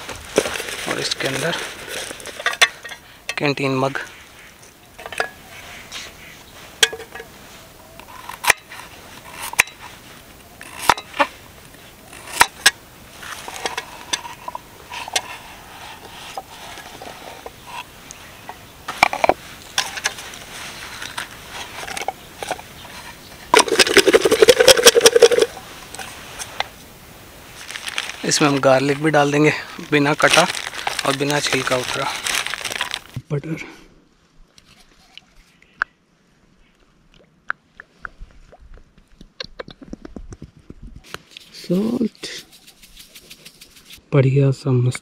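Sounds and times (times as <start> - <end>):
light metal and wood clinks: 4.6 - 5.5, 6.8 - 8.8
metal container rattling: 23.5 - 25.6, 42.2 - 44.0.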